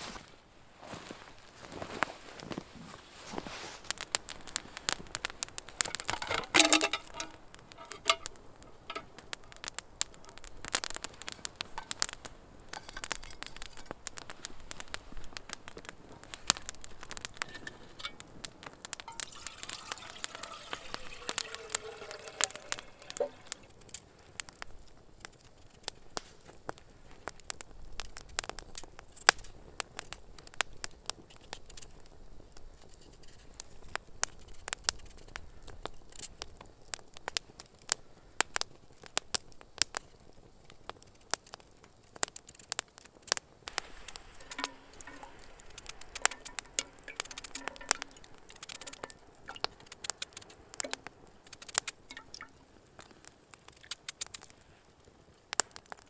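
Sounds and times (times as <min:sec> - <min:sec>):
campfire crackling and popping: 0:00.0 - 0:56.0.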